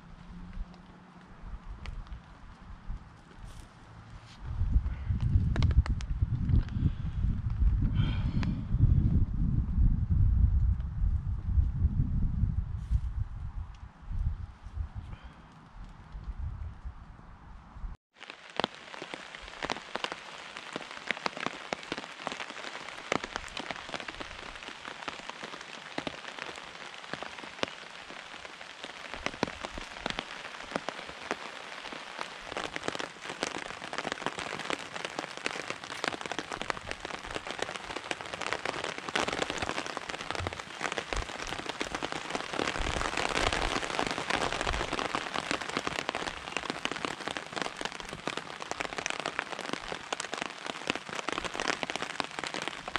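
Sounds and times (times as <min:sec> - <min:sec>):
rain drops tapping: 0:04.8 - 0:08.6, 0:18.2 - 0:52.9.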